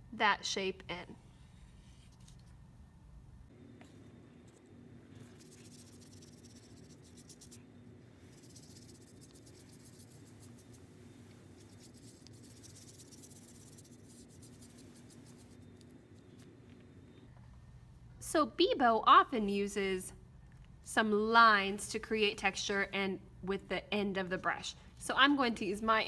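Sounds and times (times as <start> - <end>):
steady low hum: 0.0 - 26.0
paintbrush scratching on paper: 4.5 - 7.6, 8.2 - 15.8.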